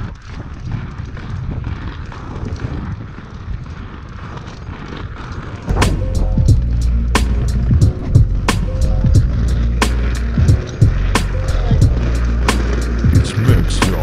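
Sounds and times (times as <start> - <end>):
skate wheels rolling on paving: 0.0 - 14.0
wind on microphone: 0.0 - 14.0
music with steady beat: 5.7 - 14.0.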